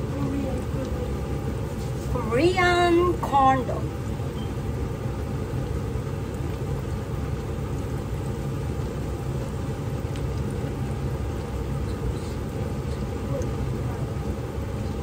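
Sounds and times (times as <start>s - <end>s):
hot oil sizzling in a pan: 2.9s - 13.7s.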